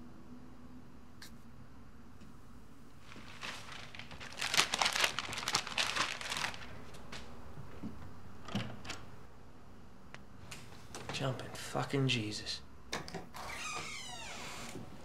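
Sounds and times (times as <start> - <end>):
paper rustling and crumpling: 3.0 - 7.3.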